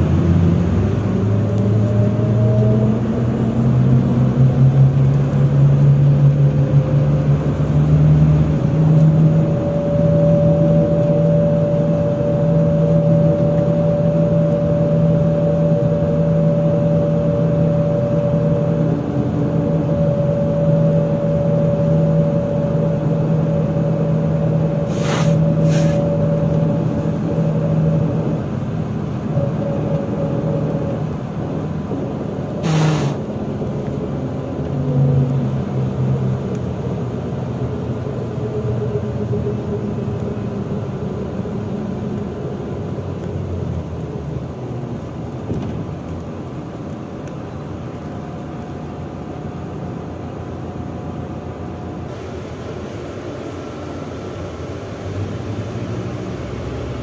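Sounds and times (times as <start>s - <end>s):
bus engine humming: 0.0s - 57.0s
brief hiss: 24.9s - 26.1s, 32.6s - 33.2s.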